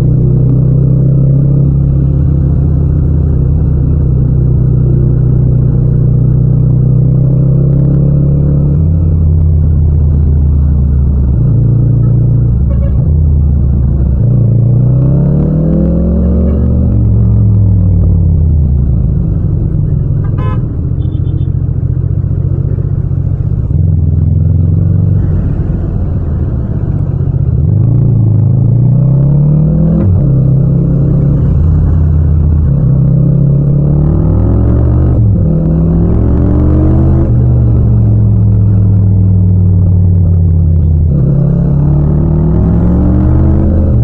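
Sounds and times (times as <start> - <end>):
motorcycle engine accelerating: 0.0 - 44.0.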